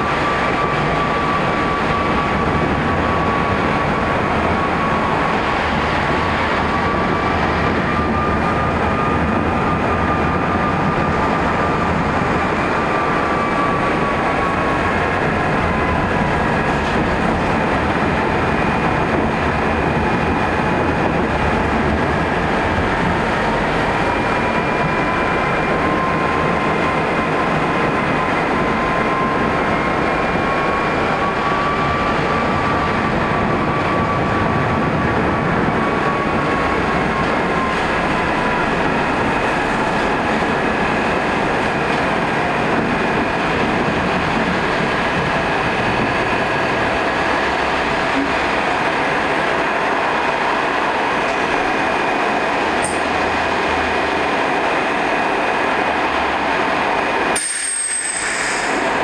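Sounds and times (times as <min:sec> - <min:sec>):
tram rolling rumble and rattle: 0:00.0 - 0:59.0.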